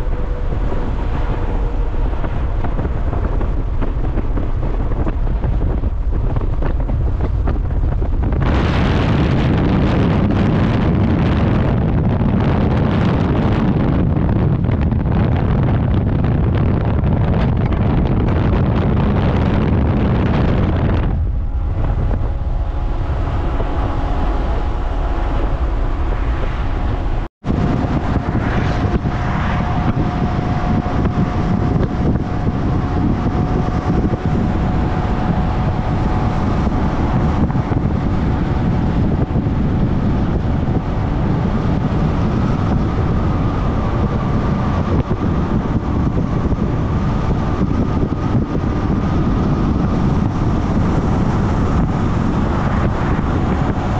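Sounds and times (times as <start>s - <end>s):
car road noise at speed: 0.0s - 53.9s
wind rumbling on microphone: 0.0s - 53.9s.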